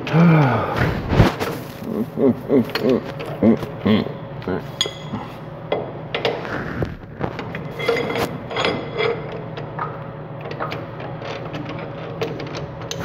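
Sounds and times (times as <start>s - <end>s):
steady low hum: 0.0s - 13.0s
metal clicks clunks and scrapes: 4.8s - 6.5s.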